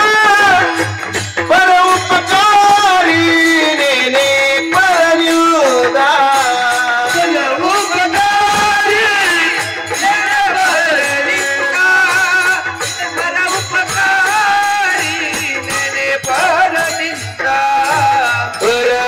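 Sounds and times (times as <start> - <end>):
hand cymbals jingling: 0.0 - 19.0
voices singing devotional melody: 0.0 - 19.0.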